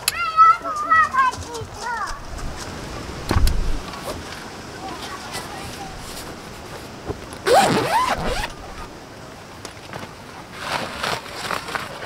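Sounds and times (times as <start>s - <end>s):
fabric rustling: 5.0s - 8.9s
zipper pulled open: 7.4s - 8.9s.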